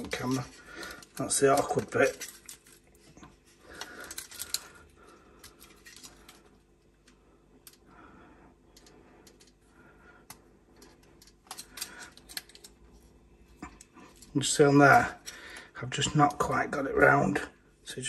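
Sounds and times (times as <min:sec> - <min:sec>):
plastic parts clicking: 0:03.8 - 0:04.7, 0:10.3 - 0:12.8.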